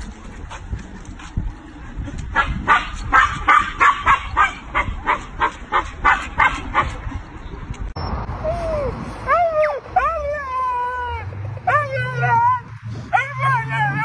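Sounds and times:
dog barking and yipping: 0:02.4 - 0:07.0.

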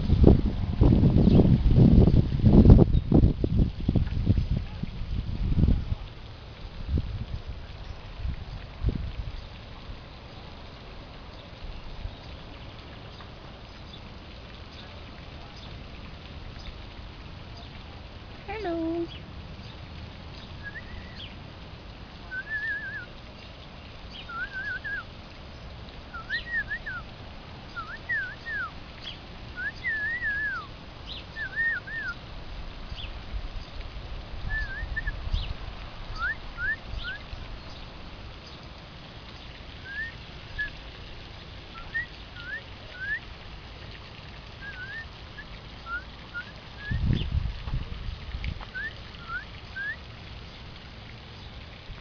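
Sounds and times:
bird whistled chirps: 0:20.6 - 0:21.3, 0:22.3 - 0:23.1, 0:24.2 - 0:25.0, 0:26.1 - 0:27.0, 0:27.8 - 0:28.7, 0:29.6 - 0:30.7, 0:31.4 - 0:32.2, 0:34.5 - 0:35.5, 0:36.2 - 0:37.2, 0:39.8 - 0:40.7, 0:41.8 - 0:43.2, 0:44.6 - 0:45.0, 0:45.9 - 0:47.3, 0:48.7 - 0:50.0.

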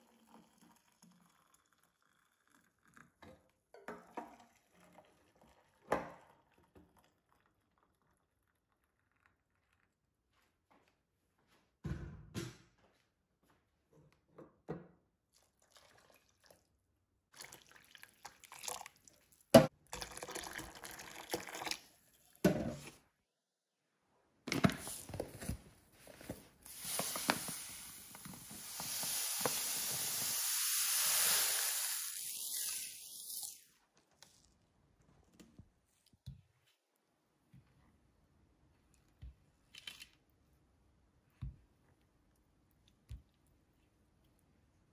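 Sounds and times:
liquid pouring into a bowl: 0:00.0 - 0:09.9, 0:15.4 - 0:16.7, 0:17.3 - 0:22.3.

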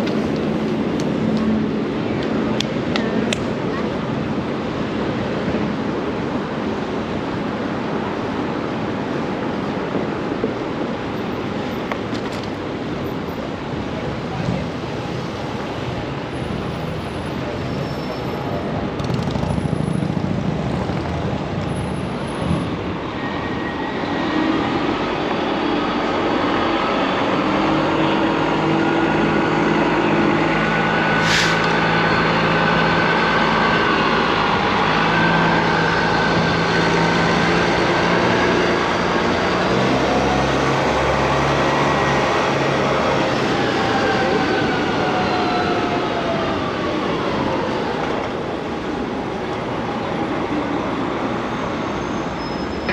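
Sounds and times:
road traffic rush: 0:00.0 - 0:52.9
large vehicle engine running: 0:18.8 - 0:23.0
short hiss: 0:31.2 - 0:31.7.

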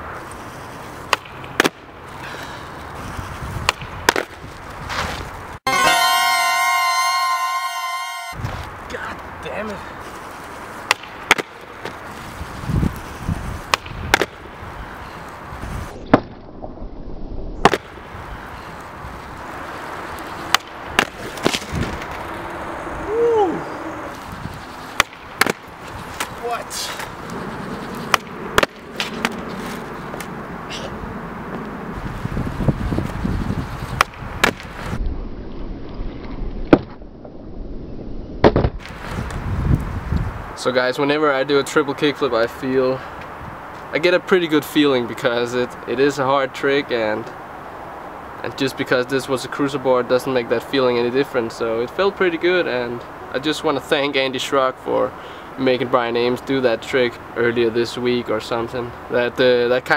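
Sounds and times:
skateboard wheels rolling on asphalt: 0:00.0 - 0:05.6, 0:07.8 - 0:16.7, 0:17.6 - 0:59.9
skateboard clack: 0:10.8 - 0:11.9, 0:13.7 - 0:14.4, 0:25.0 - 0:26.4, 0:28.1 - 0:29.4, 0:34.0 - 0:34.7.

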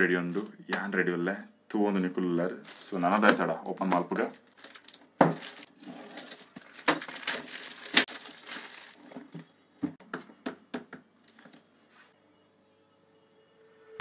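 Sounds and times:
plastic mailer crinkling: 0:02.6 - 0:09.5.

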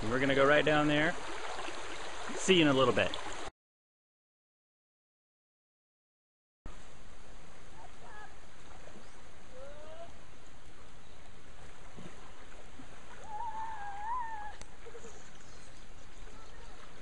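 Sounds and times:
creek water rushing: 0:00.0 - 0:03.5, 0:06.7 - 0:17.0.

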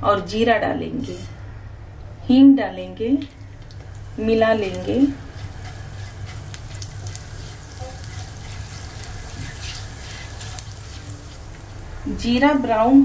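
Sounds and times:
low steady hum: 0:00.0 - 0:13.0
seeds sizzling in hot oil: 0:03.3 - 0:13.0
spatula stirring in pan: 0:04.6 - 0:11.9.

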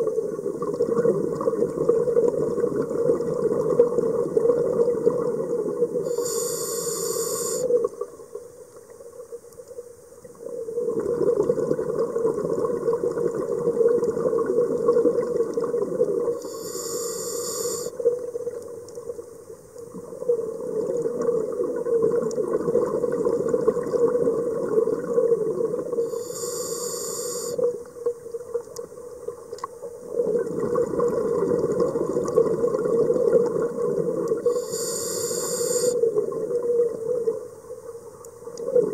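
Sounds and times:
exhaled bubbles rushing: 0:00.0 - 0:06.0, 0:10.6 - 0:16.4, 0:19.9 - 0:26.0, 0:30.0 - 0:34.5
regulator hiss on inhale: 0:06.0 - 0:07.9, 0:16.3 - 0:18.1, 0:25.9 - 0:27.9, 0:34.4 - 0:36.2.

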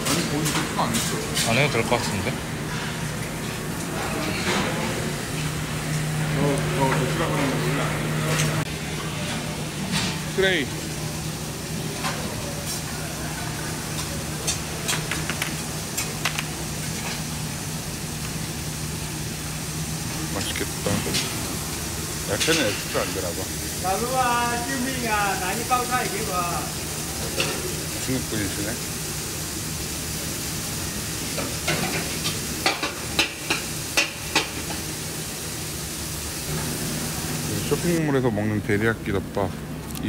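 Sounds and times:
trays and dishes clinking: 0:00.0 - 0:03.0
food sizzling on griddle: 0:08.8 - 0:38.0.

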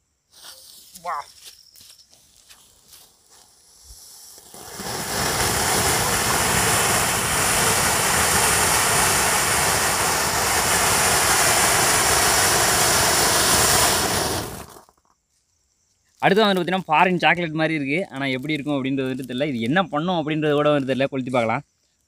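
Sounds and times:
fountain firework hissing: 0:03.6 - 0:14.8.

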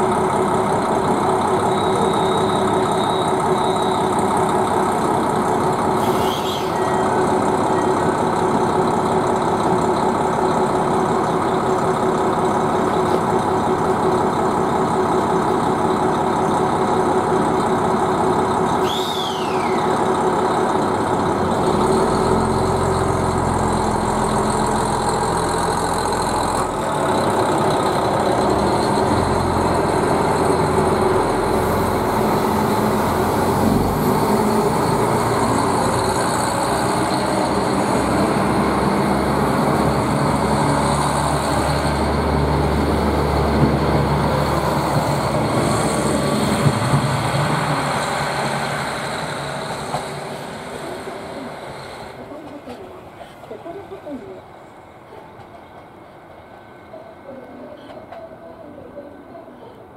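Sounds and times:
diesel train engine: 0:00.0 - 0:59.9
high falling squeals: 0:18.8 - 0:20.0.

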